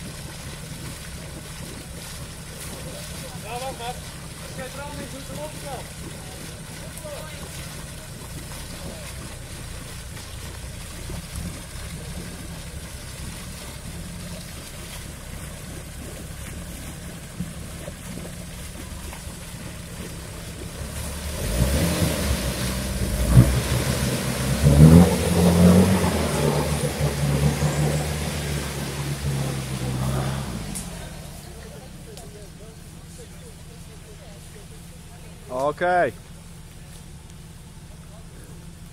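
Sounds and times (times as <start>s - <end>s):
car engine revving: 2.6s - 32.3s.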